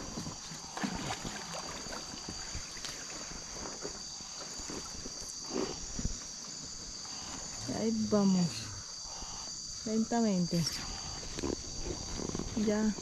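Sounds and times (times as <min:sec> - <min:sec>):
water sounds: 0:00.0 - 0:06.1
crickets and night insects chirping: 0:00.0 - 0:13.0.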